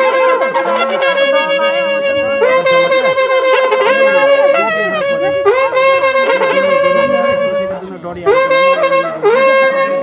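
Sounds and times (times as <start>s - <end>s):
wind instrument playing held notes: 0.0s - 10.0s.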